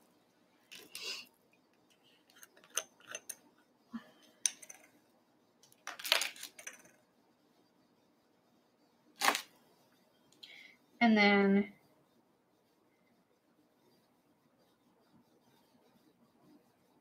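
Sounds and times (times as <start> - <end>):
craft supplies clicking and rustling: 5.6 - 7.0.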